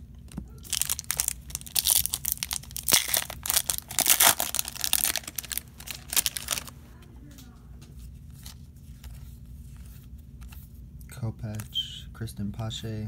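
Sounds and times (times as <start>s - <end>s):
wrapper tearing and crumpling: 0.6s - 6.8s.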